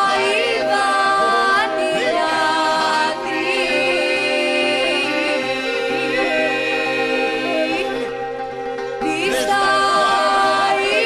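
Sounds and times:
ornamented upper singing voice: 0:00.0 - 0:08.3, 0:09.0 - 0:11.0
low sung drone: 0:00.0 - 0:11.0.

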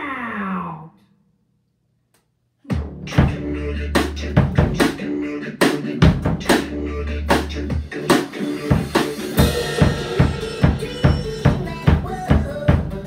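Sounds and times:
bass drum and snare beat: 0:02.7 - 0:13.0
pop backing track: 0:02.7 - 0:13.0
cymbals washing: 0:08.8 - 0:11.9.

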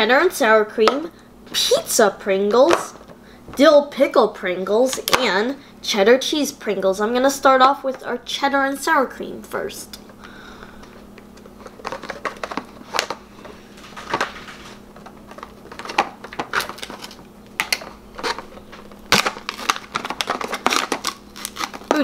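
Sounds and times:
foil seal peeling crackles: 0:13.8 - 0:22.0.

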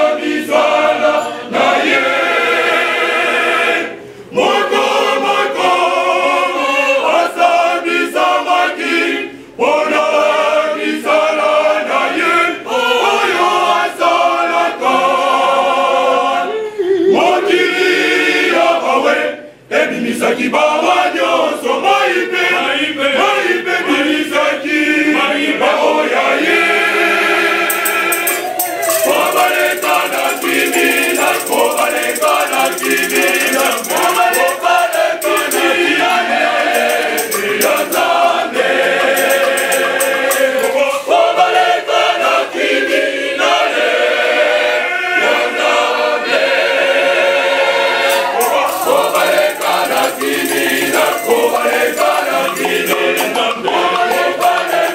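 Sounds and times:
men's choir singing: 0:00.0 - 0:54.9
hand shaker rattling: 0:27.7 - 0:41.0, 0:48.1 - 0:54.9.

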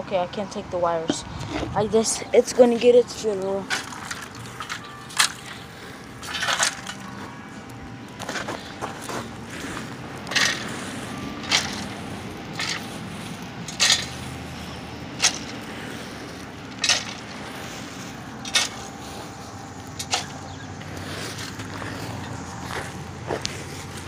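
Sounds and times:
hand digging in mulch: 0:08.2 - 0:24.0.

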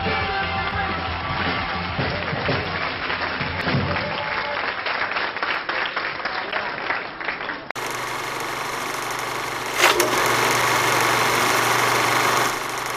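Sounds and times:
applause: 0:00.9 - 0:07.8
film projector whirring: 0:07.8 - 0:12.9.

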